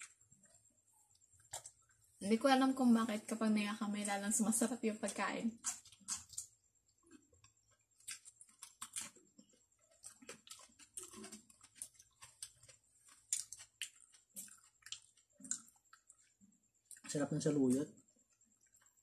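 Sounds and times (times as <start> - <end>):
wet chewing mouth clicks: 5.6 - 17.2.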